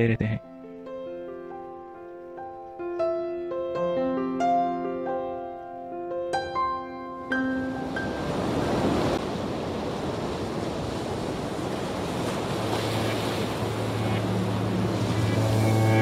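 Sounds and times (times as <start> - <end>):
sea surf rushing: 7.2 - 16.0.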